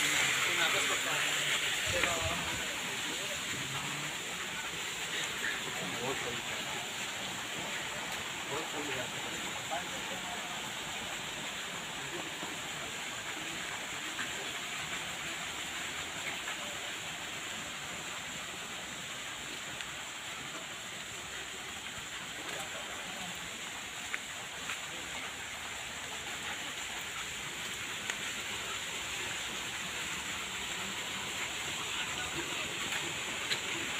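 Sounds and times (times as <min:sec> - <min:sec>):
outdoor background hiss: 0:00.0 - 0:33.9.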